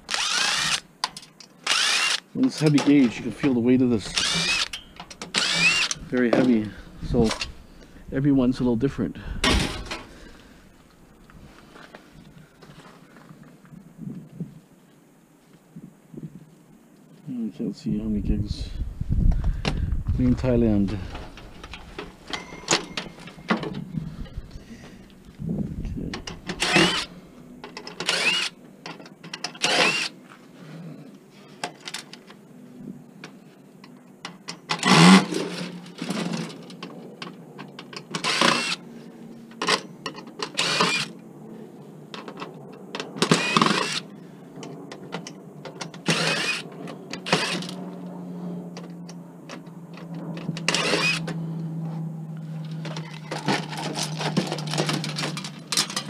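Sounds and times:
steady low hum: 1.6s - 28.9s, 35.0s - 56.0s
metal clanks and rattles: 9.4s - 10.2s, 52.6s - 56.0s.

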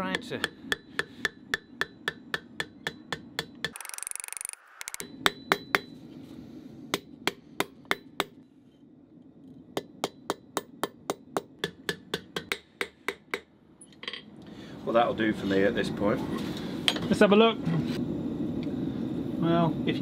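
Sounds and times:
hammer striking steel on anvil: 0.0s - 3.8s, 5.0s - 6.0s, 6.9s - 8.4s, 9.8s - 13.5s.

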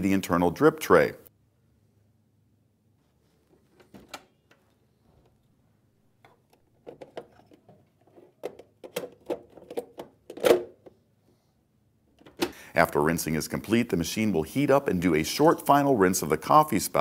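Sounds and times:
plastic clicks and rattles: 6.2s - 10.9s.

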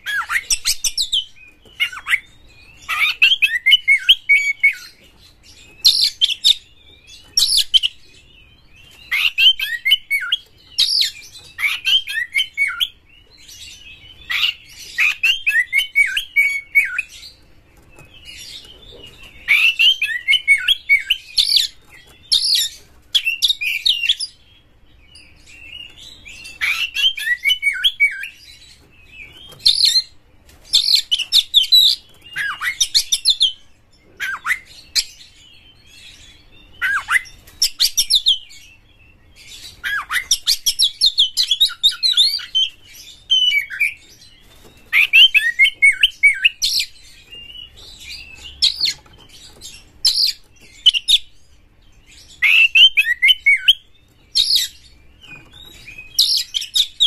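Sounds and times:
bird singing whistles and chatter: 39.5s - 51.3s, 52.1s - 57.0s.

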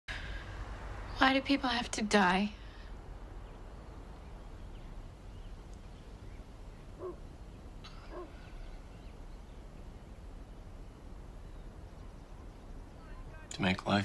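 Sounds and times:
short animal calls: 6.9s - 8.9s.

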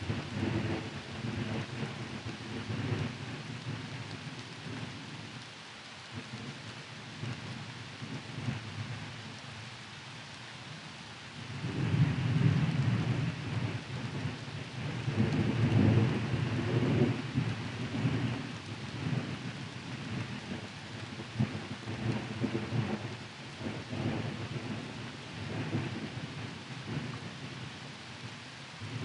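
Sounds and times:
low rolling thunder: 0.0s - 5.2s, 11.4s - 27.6s, 28.8s - 29.0s
steady rain: 0.0s - 29.0s.

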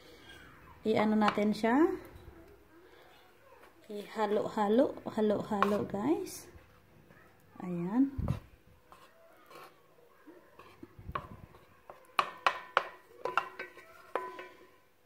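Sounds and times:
spatula tapping and scraping pot: 1.2s - 1.6s, 5.3s - 6.1s, 8.2s - 14.8s.

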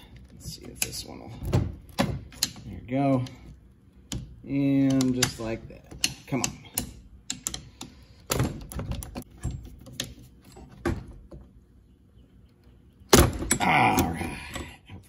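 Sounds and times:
sharp clicks and knocks: 0.1s - 11.5s.

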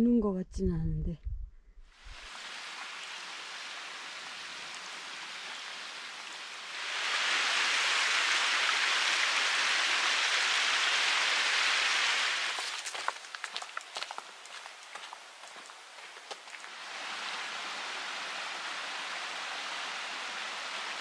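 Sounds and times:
water flowing: 2.0s - 21.0s.

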